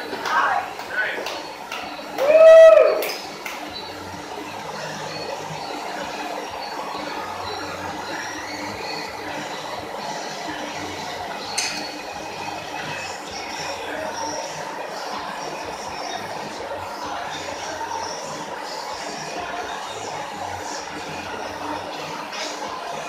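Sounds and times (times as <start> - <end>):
gym background noise: 0.0 - 23.0
short metallic clink: 11.6 - 11.9.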